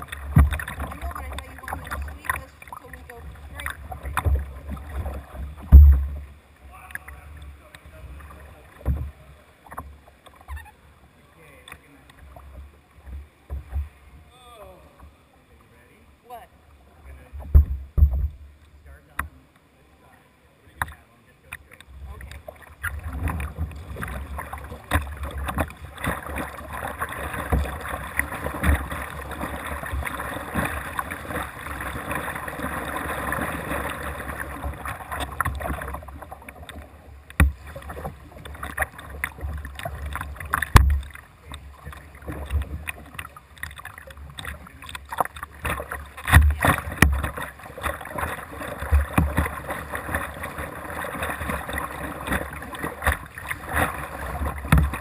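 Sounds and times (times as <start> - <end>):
paddle strokes splashing: 0.0 - 14.2, 20.7 - 55.0
water washing along kayak hull: 0.0 - 55.0
low thumps and sharp knocks: 0.1 - 0.9, 4.0 - 6.3, 17.4 - 18.4, 34.6 - 41.2, 41.9 - 50.2, 52.2 - 55.0.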